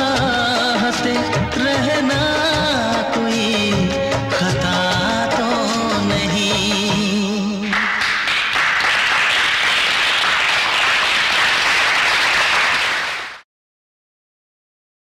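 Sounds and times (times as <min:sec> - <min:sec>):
film song singing: 0:00.0 - 0:08.0
audience applause: 0:07.7 - 0:13.4.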